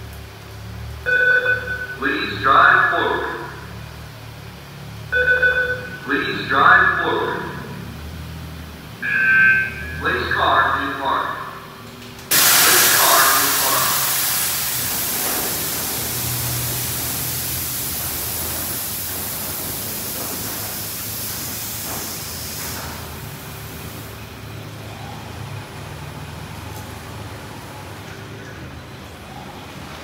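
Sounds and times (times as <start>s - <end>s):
water spraying hiss: 12.3s - 24.2s.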